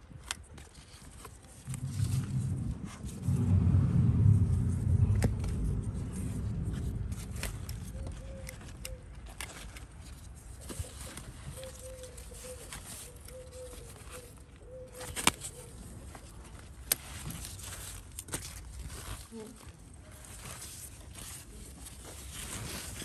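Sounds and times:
leaves rustling: 0.7 - 23.0
bird calling low notes: 1.7 - 9.3.

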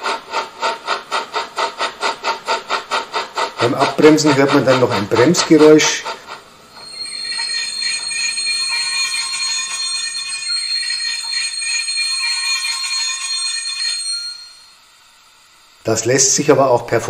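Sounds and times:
high metallic brake squeal: 6.7 - 12.4.

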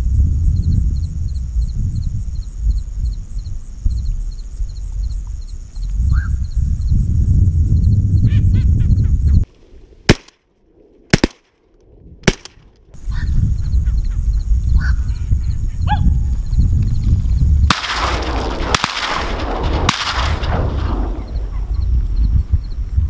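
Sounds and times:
wind rumbling on microphone: 0.0 - 23.0
sharp cracks: 10.1 - 13.0, 17.6 - 21.5
birds chirping: 21.0 - 22.8.

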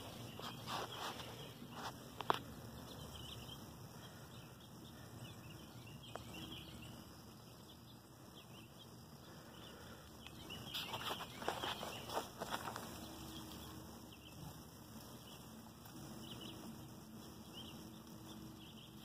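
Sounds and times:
rustling and brushing: 0.0 - 3.0, 10.4 - 18.0
birds chirping faintly: 0.0 - 19.0
outdoor background noise: 0.0 - 19.0.

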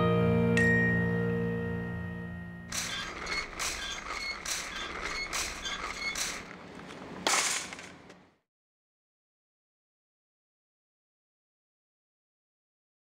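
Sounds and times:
rhythmic mechanical squeak: 2.7 - 7.0
scraping burst: 2.7 - 8.2.

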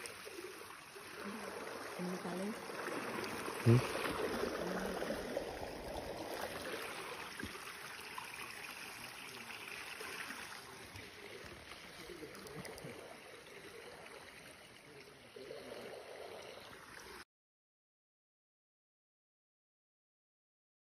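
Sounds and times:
river water rushing around raft: 1.2 - 12.3.

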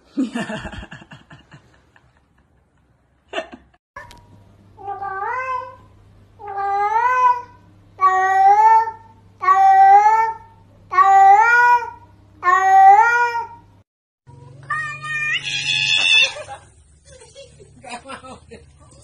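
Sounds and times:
low steady hum: 4.0 - 12.9
cat meowing: 4.8 - 13.6, 14.6 - 16.4.

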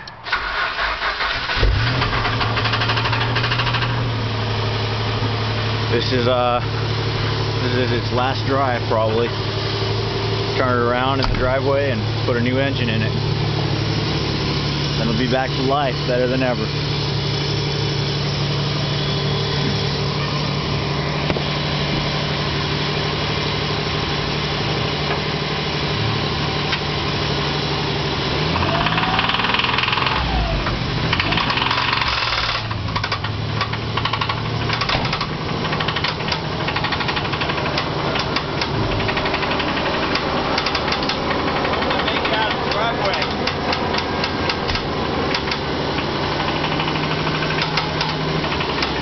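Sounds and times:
engine idling and revving: 0.0 - 49.0
engine rod knocking clatter: 31.1 - 45.7, 46.4 - 49.0.

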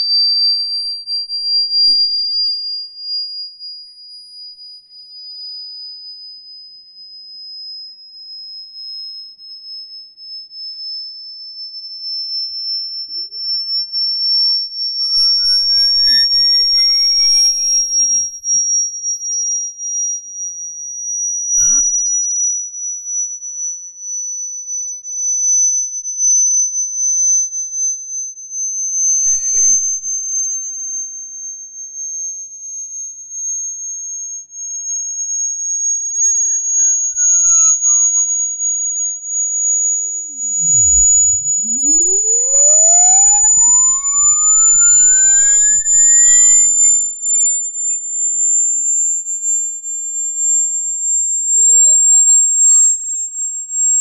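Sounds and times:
high tone gliding upward: 13.0 - 18.3, 24.7 - 25.6, 33.4 - 48.8, 50.8 - 54.0.

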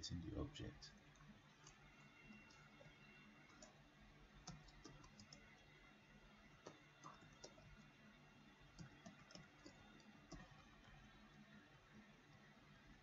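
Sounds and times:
faint keyboard typing: 0.9 - 13.0.

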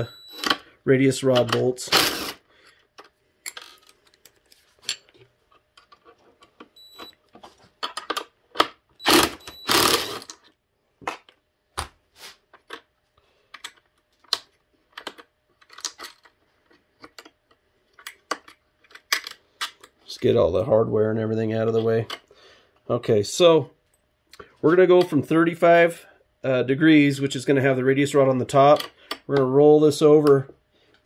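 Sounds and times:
impact driver bursts: 1.8 - 2.4, 9.0 - 10.3.

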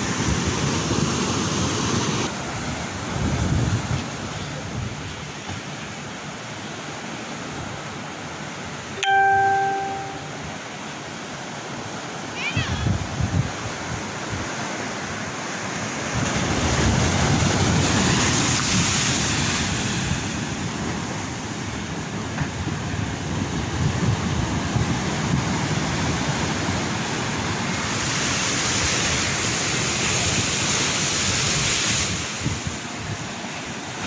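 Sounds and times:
wind buffeting microphone: 2.6 - 5.3, 12.6 - 14.5
waves breaking on concrete: 15.5 - 22.6.

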